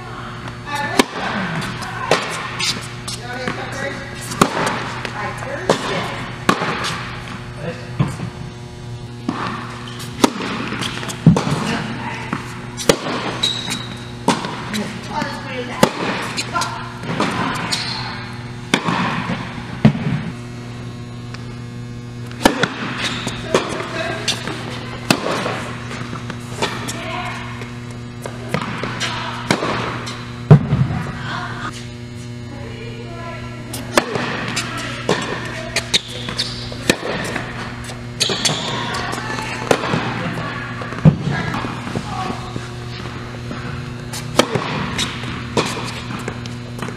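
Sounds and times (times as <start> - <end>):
electrical hum: 0.0 - 46.9
tennis balls struck and bouncing: 0.4 - 7.3, 9.2 - 20.3, 22.2 - 31.2, 33.7 - 46.9.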